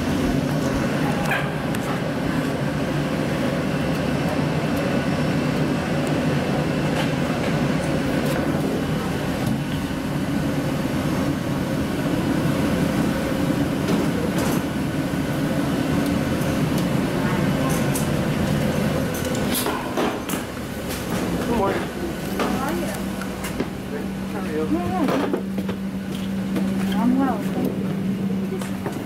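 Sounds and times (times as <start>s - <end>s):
low machinery drone: 0.0s - 29.0s.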